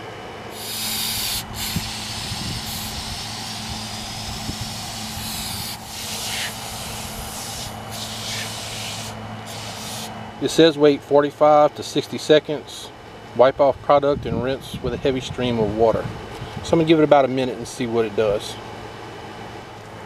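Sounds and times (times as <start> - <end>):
aerosol can spraying: 0.5 - 10.1.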